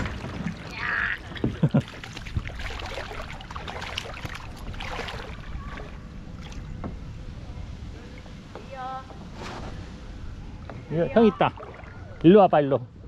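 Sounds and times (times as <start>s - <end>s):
water sloshing around a boat: 0.0s - 12.8s.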